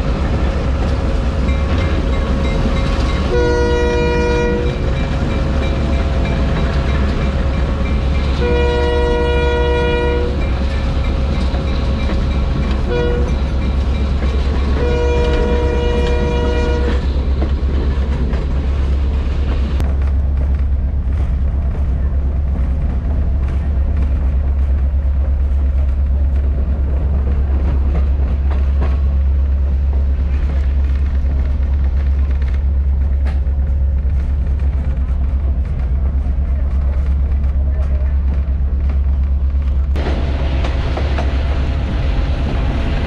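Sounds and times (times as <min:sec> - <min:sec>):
train rumbling on rails: 0:00.0 - 0:43.0
train horn blasts: 0:03.2 - 0:04.9, 0:08.3 - 0:10.4, 0:12.8 - 0:13.5, 0:14.7 - 0:17.1.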